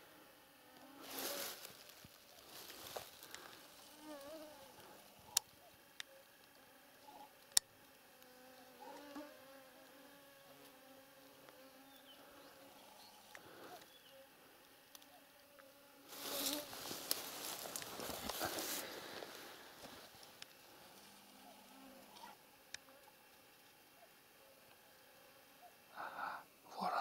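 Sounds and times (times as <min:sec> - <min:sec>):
insect buzzing: 0:00.0 - 0:26.8
soft rustles: 0:00.9 - 0:04.4, 0:16.1 - 0:21.2.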